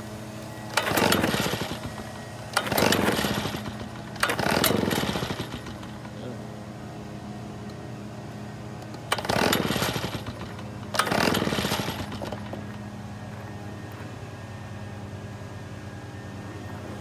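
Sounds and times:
recoil starter cranking: 0.7 - 6.2, 8.8 - 12.9.

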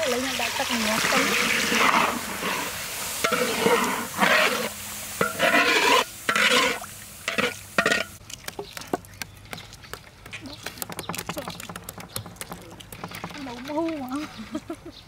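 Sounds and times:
sauce sizzling: 0.0 - 8.2
metal spatula scraping wok: 0.3 - 8.2
egg shells cracking: 8.2 - 13.6.

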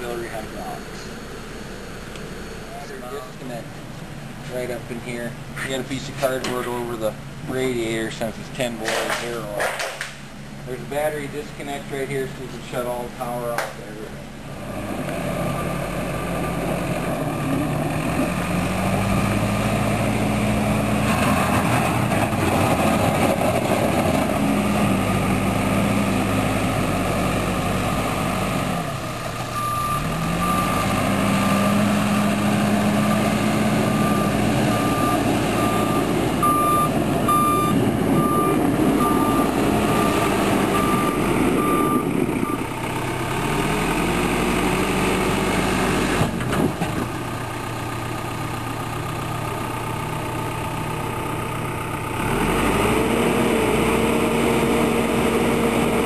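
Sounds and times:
diesel engine revving: 0.0 - 56.0
reversing alarm beeping: 29.5 - 31.0, 33.0 - 42.7.

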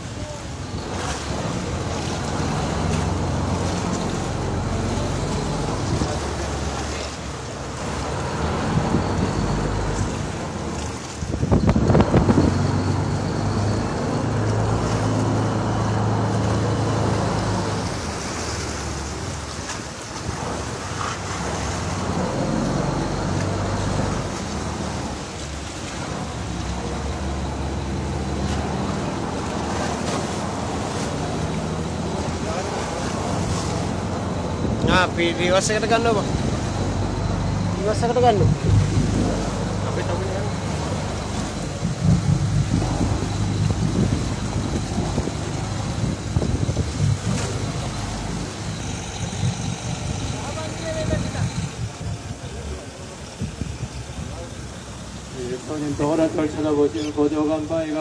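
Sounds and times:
boat engine running: 0.0 - 58.0
water rushing along hull: 0.0 - 58.0.

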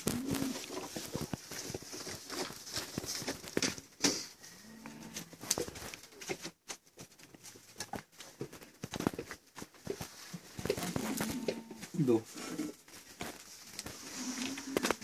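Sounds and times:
firewood knocking and clattering: 5.5 - 11.6.

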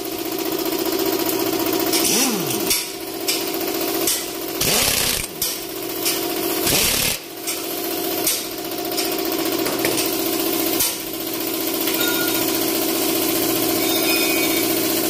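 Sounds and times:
power wrench spinning: 0.8 - 3.0, 4.5 - 7.4.

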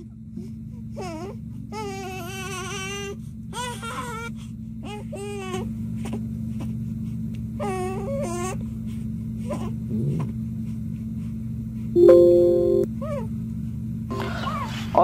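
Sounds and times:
steady low hum: 5.7 - 14.1.

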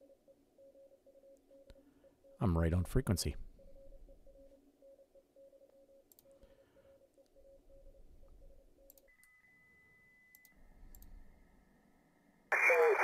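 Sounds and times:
click: 6.1 - 6.4, 8.9 - 9.4, 10.3 - 11.2.

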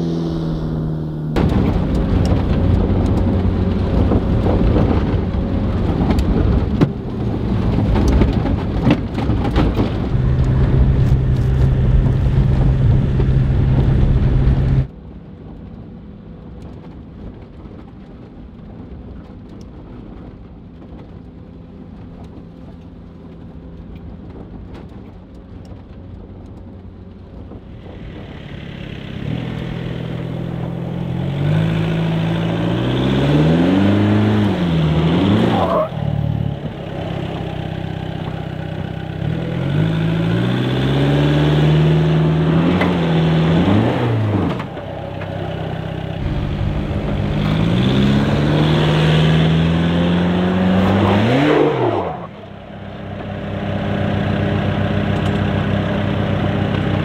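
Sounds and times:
van engine drone: 0.0 - 57.0
rattling and clicking in cabin: 1.4 - 14.8.

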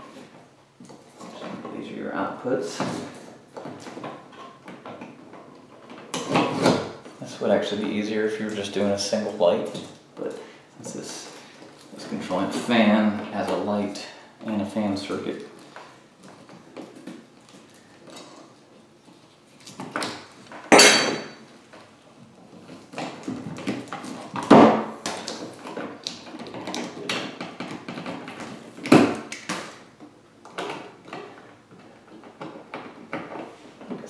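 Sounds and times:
clicks and rustles of wires: 21.3 - 34.0.

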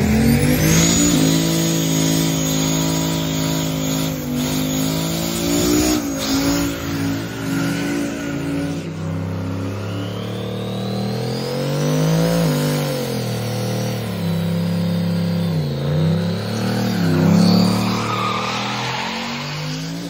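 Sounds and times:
engine revving hard: 0.0 - 20.0
tyres squealing on pavement: 15.3 - 20.0.

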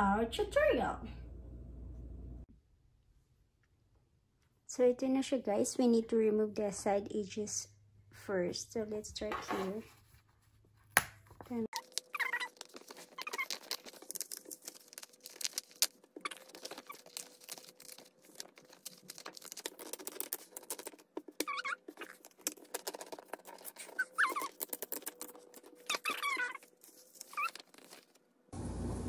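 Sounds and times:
paper crackling and tearing: 11.4 - 28.3.

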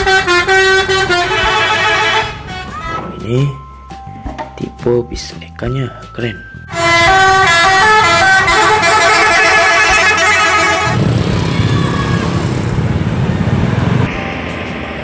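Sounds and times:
bus musical horn tune: 0.0 - 3.1, 6.7 - 11.1
motorcycle traffic: 0.0 - 3.5, 6.7 - 15.0
bus engine rumble: 0.0 - 4.7, 5.9 - 15.0.

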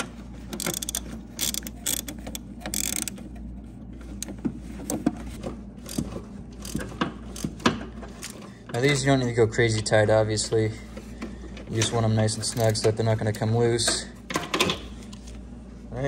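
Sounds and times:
hand ratchet clicking: 0.5 - 3.2, 5.9 - 8.4.

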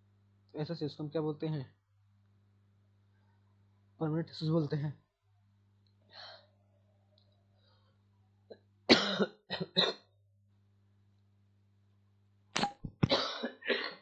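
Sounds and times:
man coughing: 8.9 - 10.1, 13.0 - 14.0.

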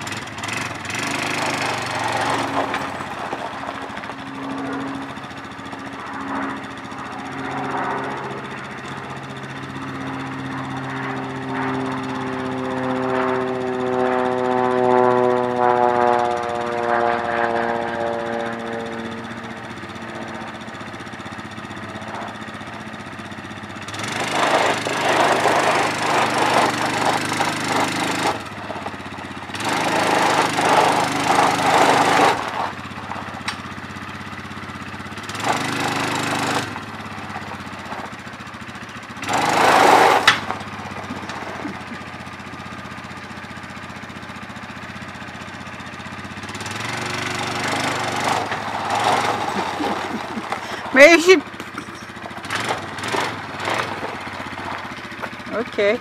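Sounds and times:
quad bike engine revving: 0.0 - 56.0
person talking: 49.6 - 52.0, 55.5 - 56.0.

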